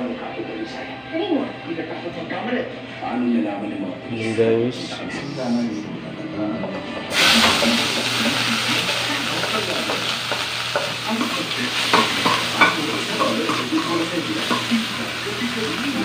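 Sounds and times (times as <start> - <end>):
aromatics sizzling in a wok: 7.1 - 16.0.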